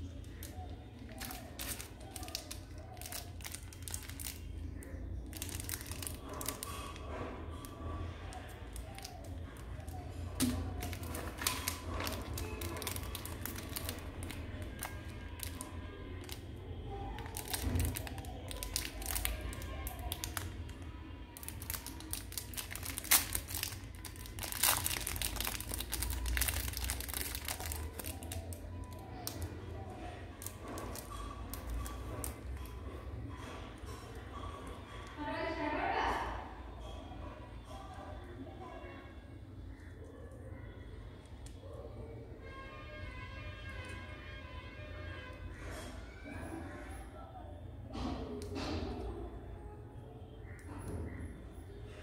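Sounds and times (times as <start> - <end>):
plastic wrappers crinkling: 0.0 - 35.2.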